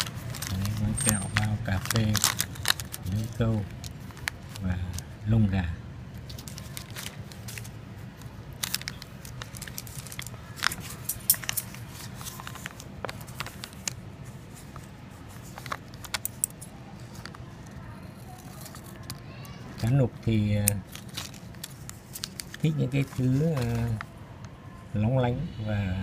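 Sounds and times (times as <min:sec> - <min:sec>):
foil wrapper crinkling: 0:00.0 - 0:05.1, 0:06.2 - 0:14.0, 0:20.6 - 0:24.1.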